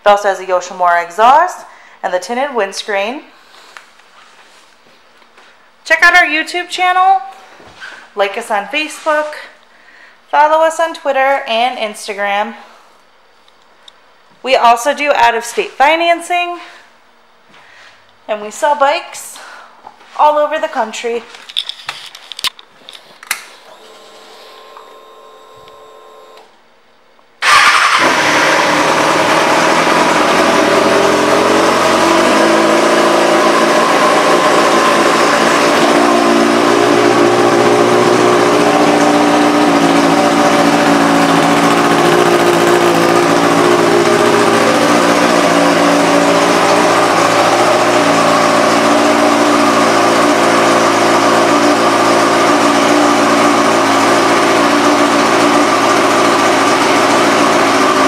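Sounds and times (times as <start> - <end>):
motorcycle engine idling: 35.1 - 49.2.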